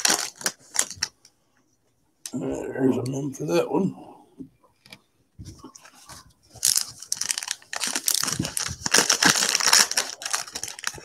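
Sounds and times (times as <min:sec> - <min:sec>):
wrapper tearing and crinkling: 0:00.0 - 0:01.2, 0:06.6 - 0:11.0.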